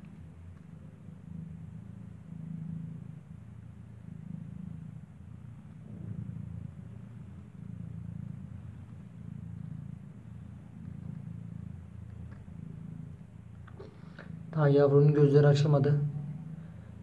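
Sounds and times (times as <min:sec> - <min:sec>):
cat purring: 0:00.0 - 0:17.0.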